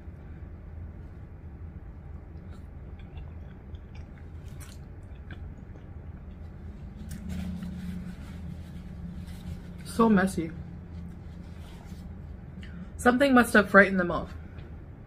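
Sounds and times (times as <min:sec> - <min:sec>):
low steady hum: 0:00.0 - 0:15.0
person chewing: 0:02.1 - 0:07.4.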